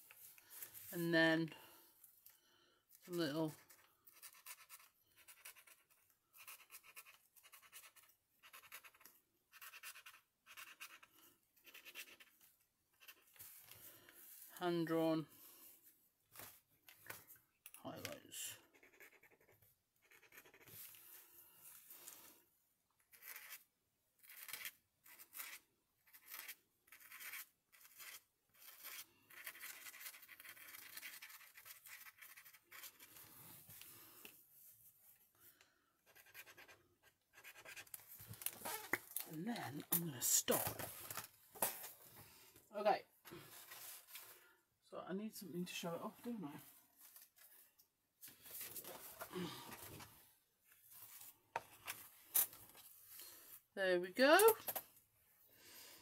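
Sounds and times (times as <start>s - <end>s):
marker scratching on paper: 3.6s - 13.6s, 18.6s - 21.0s, 23.1s - 23.6s, 24.2s - 33.1s, 36.0s - 38.0s.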